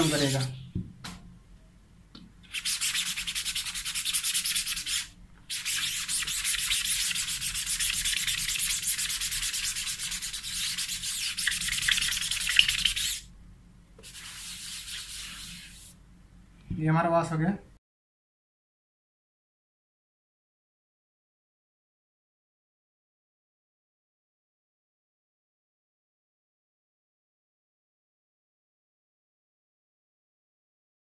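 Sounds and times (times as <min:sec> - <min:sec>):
cloth rag scrubbing a screen mesh: 0:02.5 - 0:13.3, 0:14.0 - 0:16.0.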